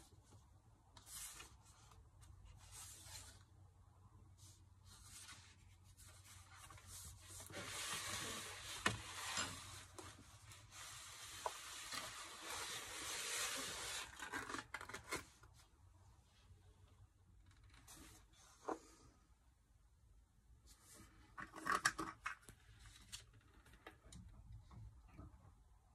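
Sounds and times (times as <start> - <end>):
sketchbook pages rustling: 1.0 - 3.5, 4.4 - 15.6.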